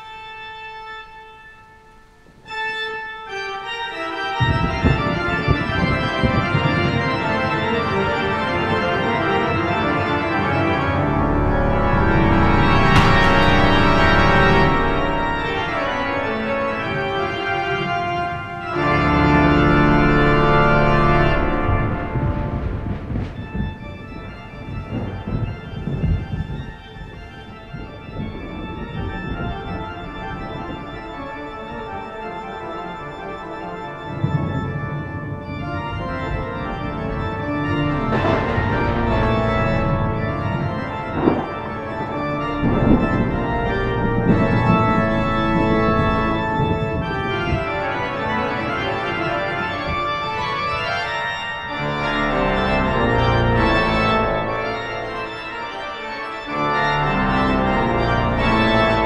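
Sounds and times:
organ playing sustained chords: 0.0s - 59.0s
sudden loud hits: 12.0s - 16.3s, 37.0s - 41.7s.

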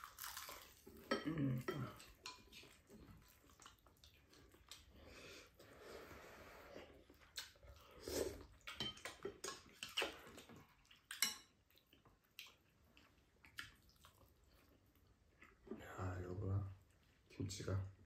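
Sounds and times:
soft chewing: 0.0s - 18.0s.

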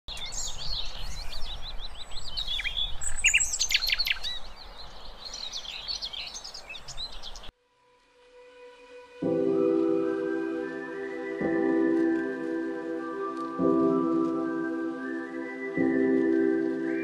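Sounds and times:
songbirds singing: 0.1s - 7.5s, 14.2s - 17.0s.

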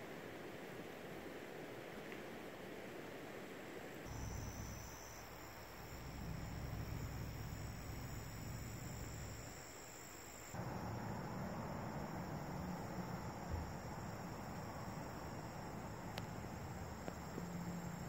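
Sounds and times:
insects trilling: 4.0s - 18.0s.

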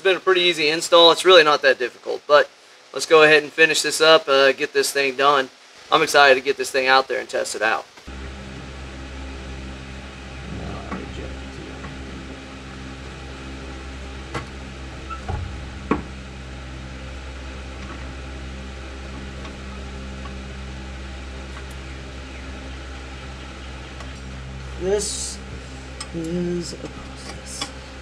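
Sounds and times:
steady low hum: 7.6s - 28.0s.

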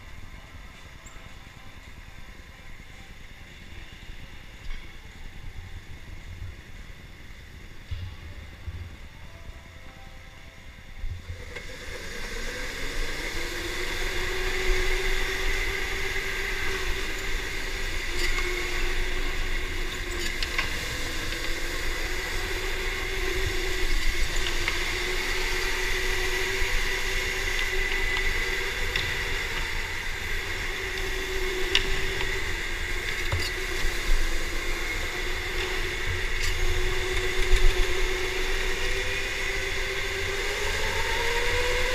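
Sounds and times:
electric motor whining: 11.5s - 41.9s.

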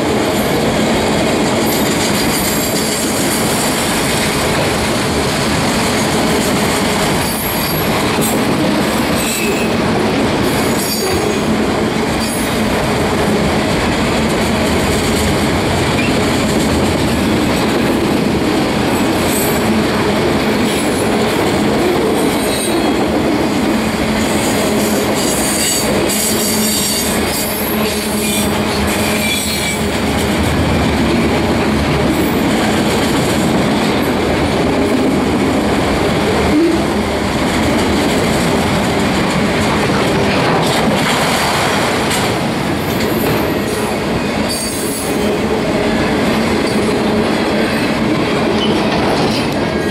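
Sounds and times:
train wheels rumbling on rails: 0.0s - 49.9s.

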